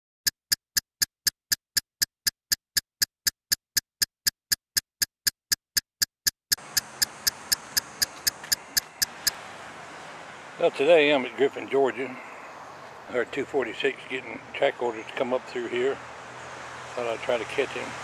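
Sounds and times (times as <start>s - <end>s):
sharp electronic ticking: 0.2s - 9.4s
faint outdoor background noise: 6.6s - 18.0s.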